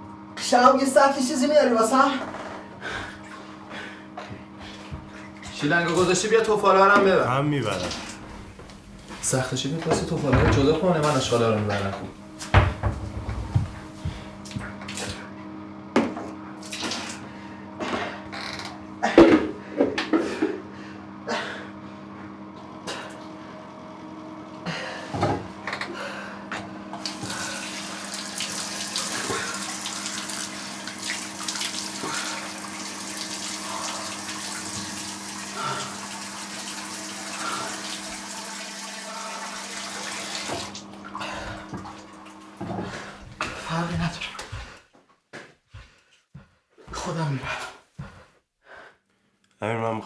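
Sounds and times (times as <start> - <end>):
tap water running: 2.8 - 15.3, 16.0 - 20.5, 25.2 - 44.8.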